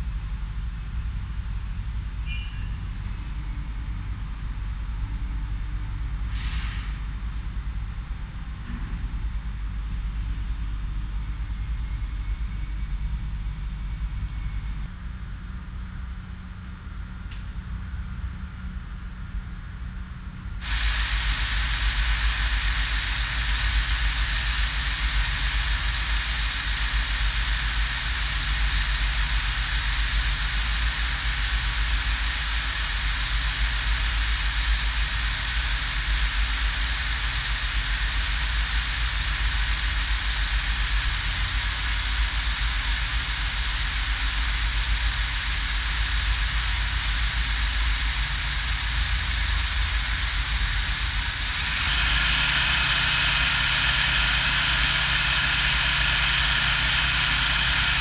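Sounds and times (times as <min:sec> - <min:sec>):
film projector running: 0:20.6 - 0:58.0.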